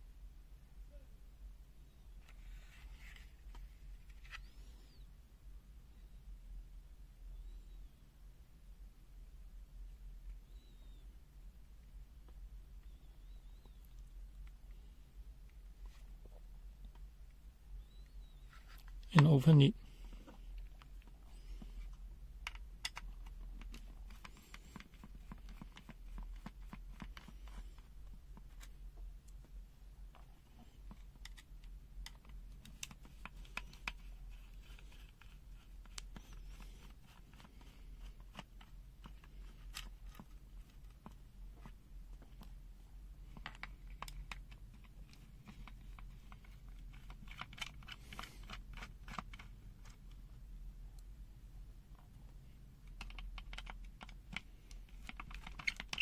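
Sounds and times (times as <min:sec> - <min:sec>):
plastic clicks and scrapes: 0:20.0 - 0:28.8, 0:30.2 - 0:42.6, 0:43.2 - 0:50.2, 0:52.8 - 0:56.0.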